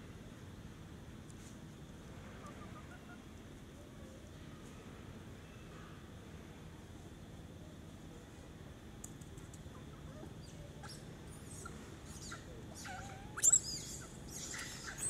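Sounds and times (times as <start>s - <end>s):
young monkeys squealing: 10.1s - 15.0s.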